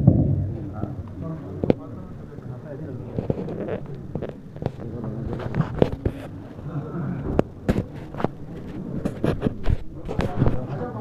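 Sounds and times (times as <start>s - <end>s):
murmur of voices: 0.0s - 11.0s.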